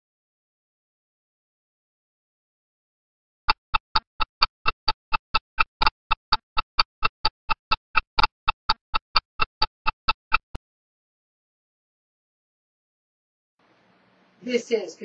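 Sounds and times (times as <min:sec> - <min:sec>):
rapid ringing ticks: 0:03.5 - 0:10.6.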